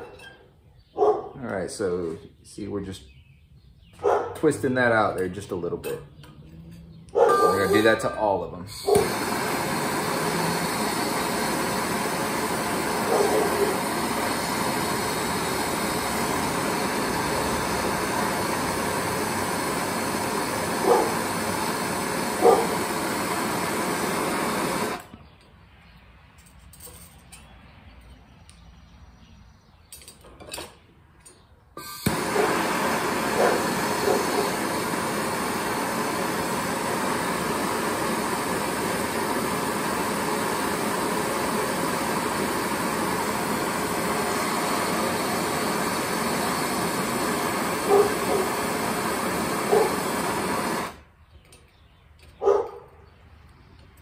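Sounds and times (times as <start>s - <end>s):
propane torch hissing: 7.3s - 25.2s, 31.8s - 51.1s.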